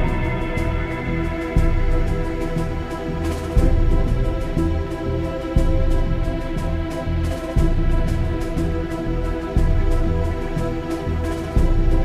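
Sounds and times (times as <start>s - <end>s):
sustained synth chords: 0.0s - 12.0s.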